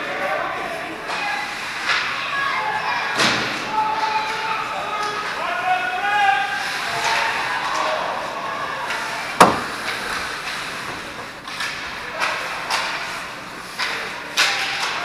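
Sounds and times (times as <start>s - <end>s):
arena crowd hubbub: 0.0s - 15.0s
loud bang against boards: 9.4s - 10.0s.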